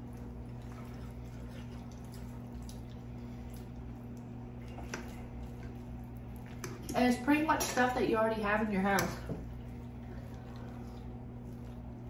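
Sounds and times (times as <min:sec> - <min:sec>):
wet chewing: 0:00.0 - 0:07.0, 0:09.4 - 0:12.0
steady low hum: 0:00.0 - 0:12.0.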